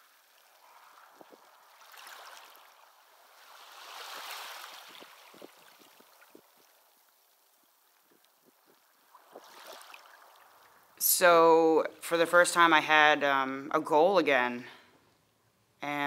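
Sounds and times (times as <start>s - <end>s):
small waves washing onto shore: 0.0s - 11.0s.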